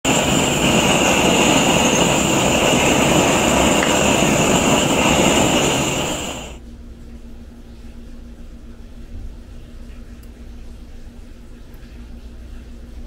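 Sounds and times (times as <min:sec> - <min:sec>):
gas torch roaring: 0:00.0 - 0:06.6.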